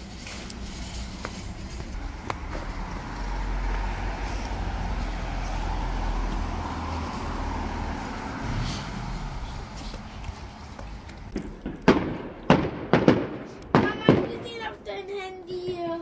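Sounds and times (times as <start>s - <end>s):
low traffic rumble: 0.0s - 16.0s
car driving past: 0.9s - 10.7s.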